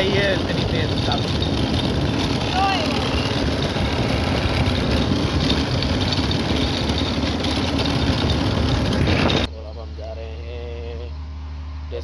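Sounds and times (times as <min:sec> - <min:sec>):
quad bike engine running: 0:00.0 - 0:09.5.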